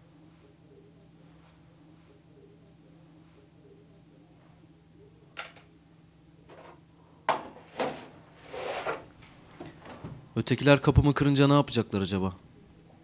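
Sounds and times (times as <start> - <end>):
rustling and scraping: 7.5 - 10.1.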